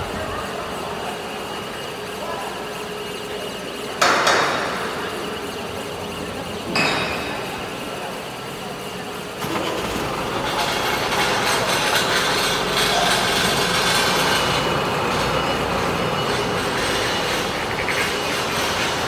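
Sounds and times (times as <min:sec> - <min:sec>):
factory workshop hum: 0:00.0 - 0:19.0
sharp metallic clanks: 0:06.7 - 0:07.6.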